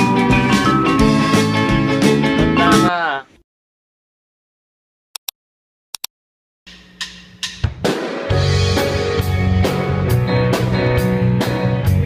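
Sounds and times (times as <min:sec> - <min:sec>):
band with drums and bass: 0:00.0 - 0:02.9, 0:07.4 - 0:12.0.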